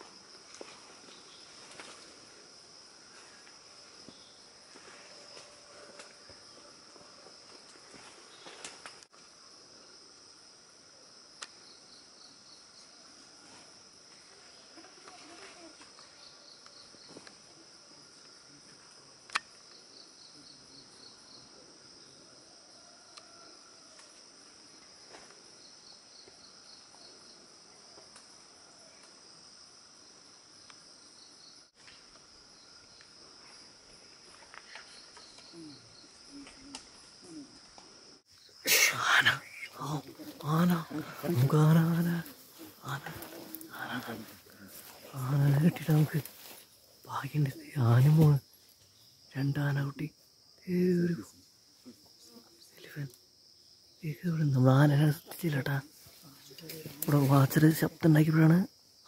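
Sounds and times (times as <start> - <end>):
small sharp clicks: 19.3 - 19.6.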